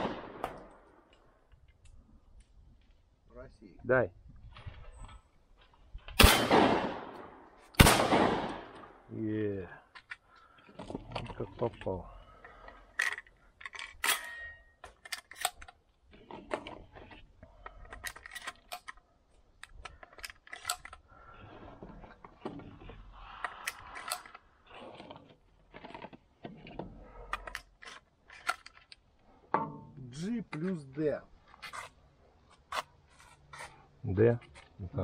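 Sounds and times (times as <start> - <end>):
metallic clicks of shotgun action: 13.0 - 15.8.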